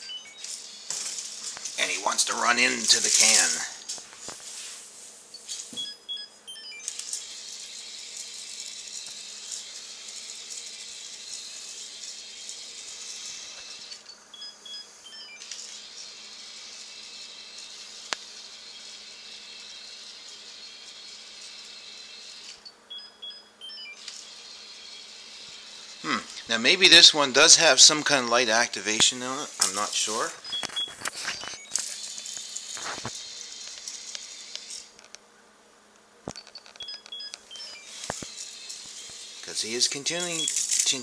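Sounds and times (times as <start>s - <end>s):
electronic beeps: 0.0s - 0.6s, 5.4s - 7.0s, 13.6s - 15.5s, 22.7s - 25.2s, 30.4s - 32.2s, 36.3s - 39.3s, 40.0s - 41.0s
toy motor and gears whirring: 0.0s - 3.8s, 5.4s - 28.0s, 28.8s - 35.2s, 36.3s - 41.0s.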